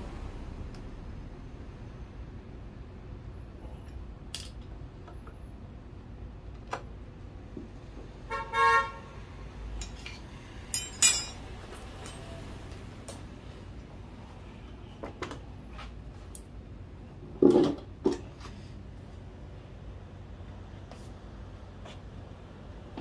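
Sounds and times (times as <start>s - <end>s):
metallic clinks of tools: 9.8s - 12.4s.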